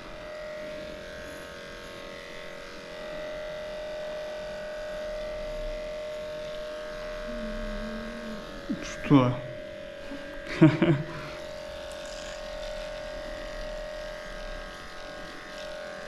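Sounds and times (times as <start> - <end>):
electric clipper humming: 0.0 - 16.0.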